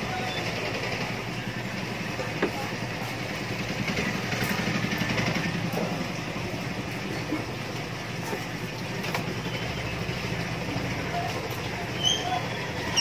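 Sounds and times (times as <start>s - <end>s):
small engine running: 3.0s - 7.2s.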